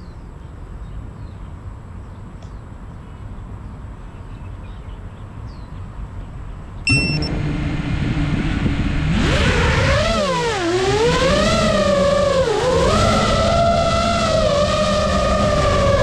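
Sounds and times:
outdoor background noise: 0:00.0 - 0:16.0
drone motors humming: 0:06.9 - 0:16.0.

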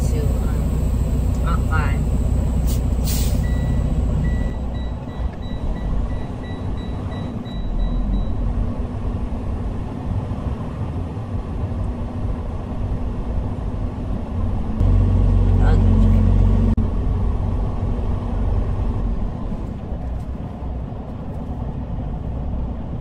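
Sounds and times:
diesel truck engine running: 0:00.0 - 0:20.8
electronic beep: 0:03.4 - 0:08.4.

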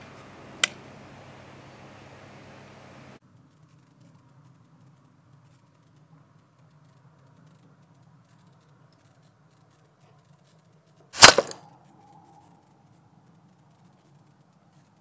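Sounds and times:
air rifle shot crack: 0:11.2 - 0:11.6.

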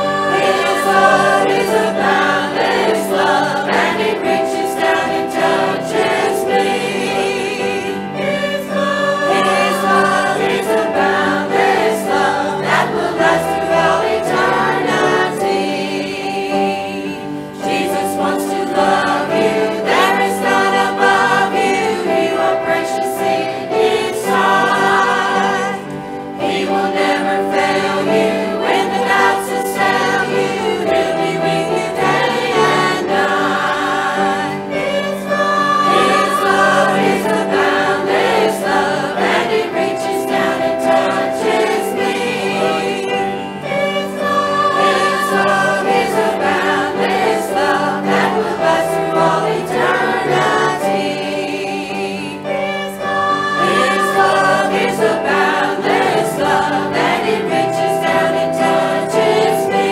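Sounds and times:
church choir singing: 0:00.0 - 0:59.9.

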